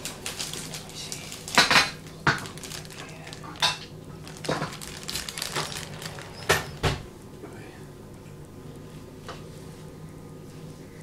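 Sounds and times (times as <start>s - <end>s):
plastic packet crackling: 0.0s - 7.0s.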